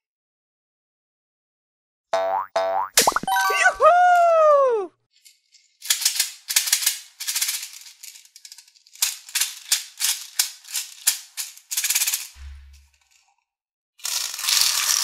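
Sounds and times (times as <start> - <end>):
beads rattling in plastic bottle: 5.2 - 12.4, 14.0 - 15.0.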